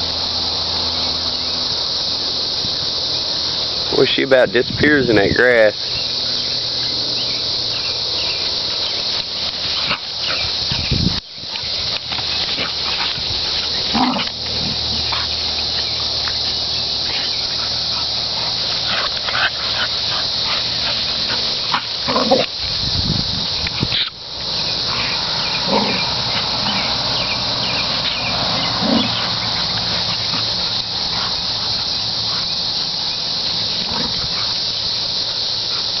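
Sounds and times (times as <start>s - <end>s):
high insect drone: 0.0s - 36.0s
dogs growling and grunting: 12.4s - 15.6s, 17.1s - 22.6s, 24.6s - 32.6s, 33.6s - 34.6s.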